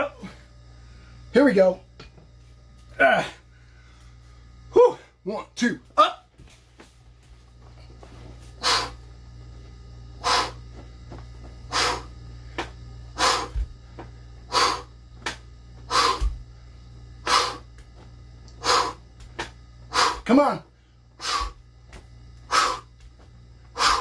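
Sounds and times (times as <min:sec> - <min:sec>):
low steady hum: 0:00.0 - 0:24.0
man's forceful breaths: 0:07.9 - 0:09.1, 0:10.2 - 0:10.7, 0:11.6 - 0:15.0, 0:15.8 - 0:16.5, 0:17.2 - 0:17.7, 0:18.5 - 0:19.1, 0:19.9 - 0:21.7, 0:22.4 - 0:23.0, 0:23.6 - 0:24.0.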